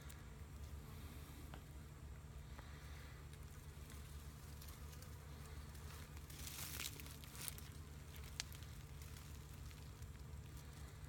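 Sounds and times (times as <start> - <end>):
crinkly rustling: 3.8 - 11.0.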